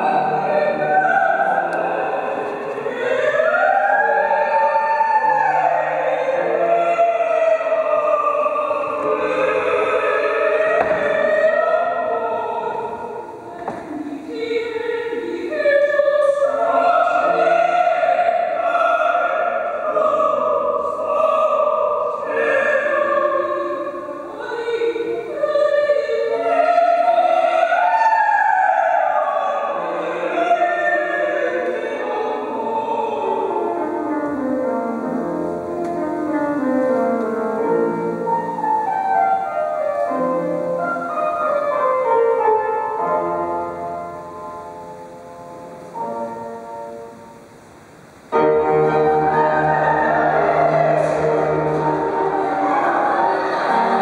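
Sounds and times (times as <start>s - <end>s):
opera singers singing: 0.0s - 47.5s, 48.1s - 54.0s
keyboard playing: 33.3s - 47.6s, 48.2s - 54.0s.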